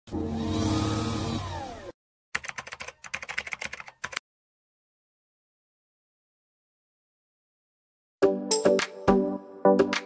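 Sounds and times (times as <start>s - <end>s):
keyboard typing clicks: 2.4s - 4.2s.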